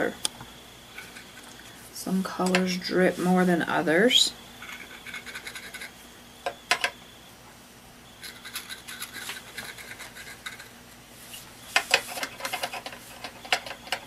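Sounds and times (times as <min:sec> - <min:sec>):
stylus scraping on gourd: 0:04.6 - 0:06.0, 0:08.3 - 0:13.4.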